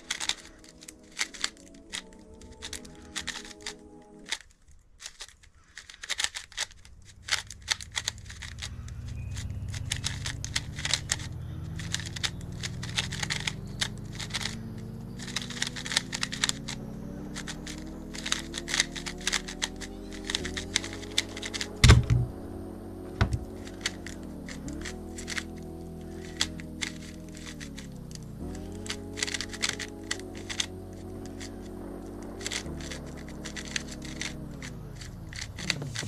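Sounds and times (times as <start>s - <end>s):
background music: 0.0s - 4.5s, 7.3s - 36.0s
plastic speed cube clicking: 0.0s - 22.5s, 23.1s - 36.0s
rising tone: 7.2s - 36.0s
heavy thumps: 21.8s - 22.5s, 23.1s - 23.7s.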